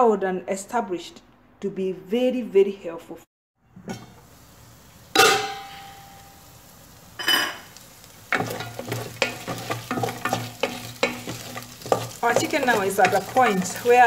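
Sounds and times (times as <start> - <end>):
chicken sizzling: 3.8 - 14.0
metal pot lid clanking: 5.2 - 6.0, 8.3 - 14.0
wooden spoon scraping a pot: 8.3 - 14.0.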